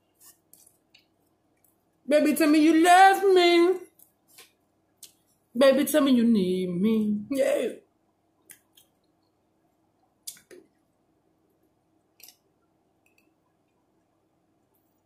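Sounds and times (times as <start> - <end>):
mouth clicks: 10.2 - 10.7.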